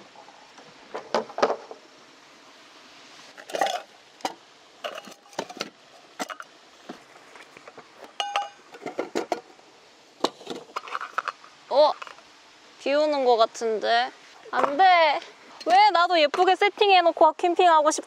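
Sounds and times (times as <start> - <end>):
camping gear knocks and clinks: 7.6 - 9.5
short ringing clink: 8.2 - 8.6.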